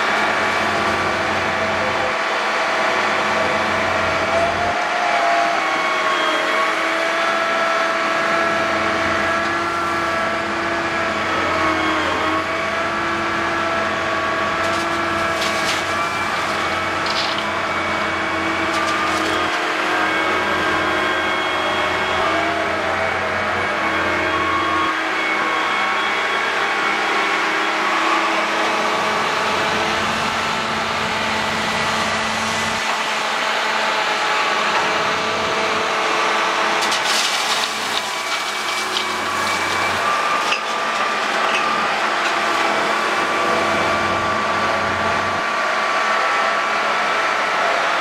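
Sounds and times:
excavator engine and hydraulics: 0.0 - 48.0
stones rattling into steel trailer: 14.6 - 17.6, 18.6 - 19.7, 36.7 - 43.3.

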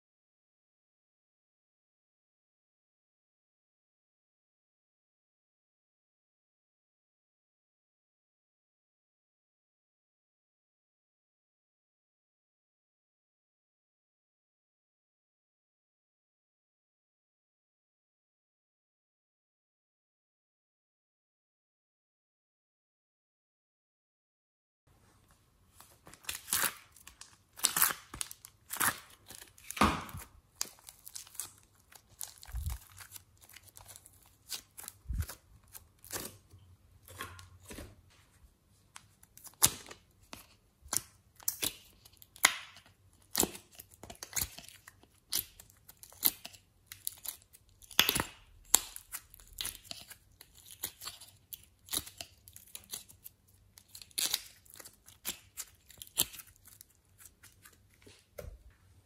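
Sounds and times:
plastic containers crinkling: 25.8 - 38.0.

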